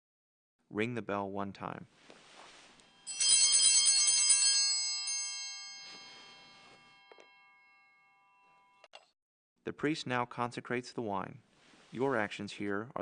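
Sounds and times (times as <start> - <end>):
cluster of brass bells jangling: 3.0 - 7.4.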